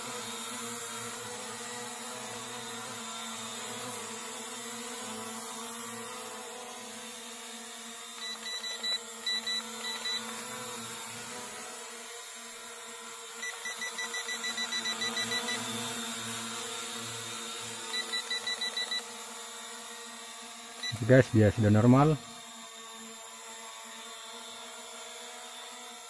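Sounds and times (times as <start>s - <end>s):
steady hum: 20.8s - 22.2s.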